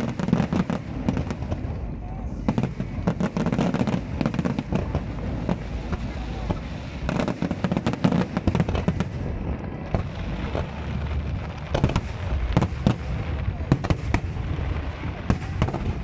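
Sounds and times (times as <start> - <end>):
low rumble: 8.3 - 16.0.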